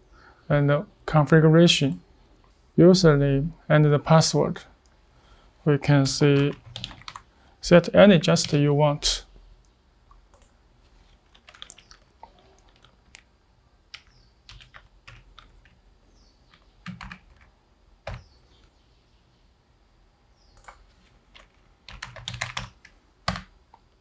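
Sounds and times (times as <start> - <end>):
computer keyboard typing: 6.4 - 7.3, 10.3 - 13.3, 13.9 - 15.8, 16.5 - 18.3, 20.6 - 23.5.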